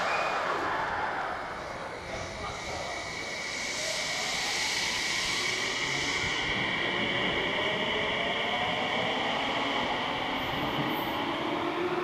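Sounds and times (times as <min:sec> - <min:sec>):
electric train accelerating: 0:00.0 - 0:12.0.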